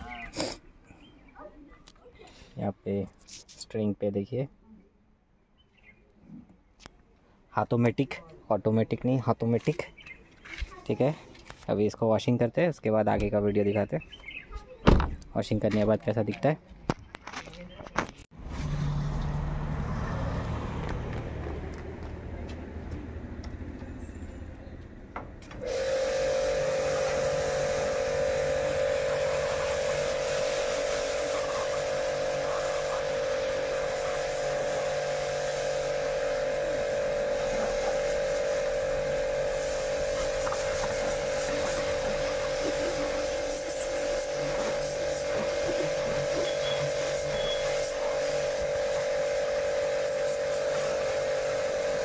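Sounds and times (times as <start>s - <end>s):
vehicle engine hum: 18.3s - 52.0s
pressure washer whine: 25.4s - 52.0s
water jet spraying car: 25.5s - 52.0s.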